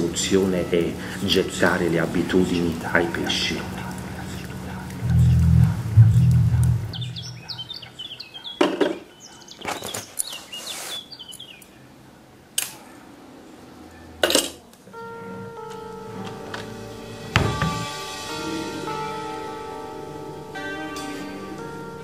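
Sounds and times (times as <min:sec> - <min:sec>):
music with held tones: 0:00.0 - 0:08.0, 0:14.9 - 0:22.0
birds chirping: 0:00.0 - 0:22.0.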